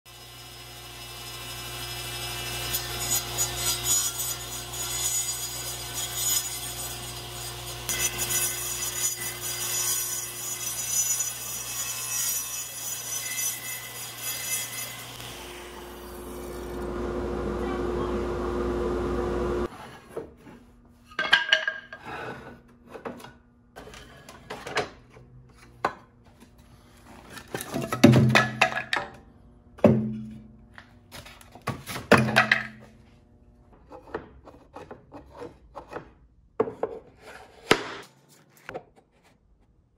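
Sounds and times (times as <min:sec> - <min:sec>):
table saw rasping cut: 0:00.1 - 0:20.0
saw motor hum: 0:13.8 - 0:19.7.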